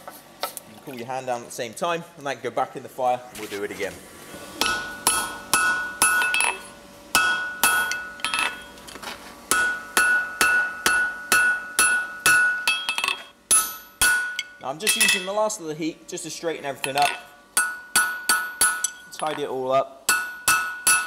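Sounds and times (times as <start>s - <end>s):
hammer ringing on anvil: 4.6s - 8.7s, 9.5s - 15.4s, 16.8s - 19.5s, 20.1s - 21.0s.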